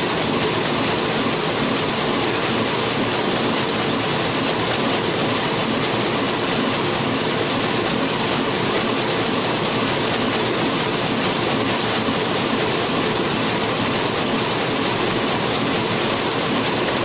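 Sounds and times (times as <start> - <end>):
printing press clattering: 0.0 - 17.0.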